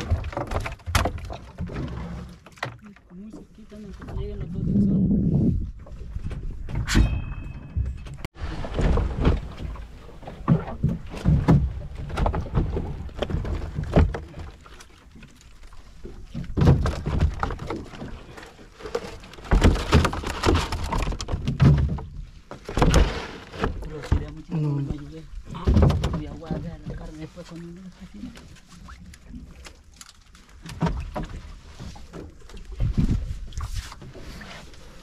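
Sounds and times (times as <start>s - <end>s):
thumps and knocks on boat: 0.0s - 2.8s, 7.6s - 14.8s, 16.2s - 18.3s, 18.9s - 27.2s.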